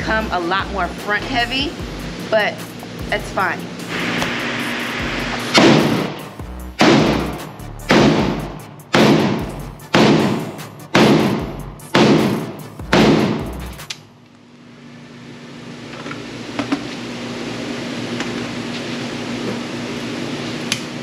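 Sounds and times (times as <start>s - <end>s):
pistol shots echoing indoors: 5.5s - 6.2s, 6.8s - 13.5s.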